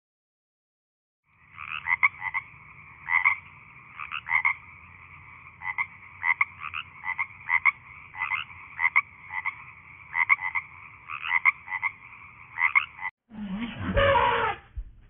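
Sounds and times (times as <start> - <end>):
frog croaking: 1.3 - 13.1
low animal sound: 13.3 - 14.8.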